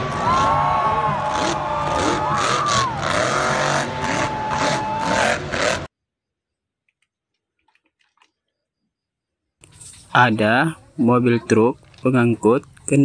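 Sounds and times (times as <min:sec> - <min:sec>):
crowd noise: 0:00.0 - 0:05.9
truck engine revving hard: 0:00.0 - 0:05.9.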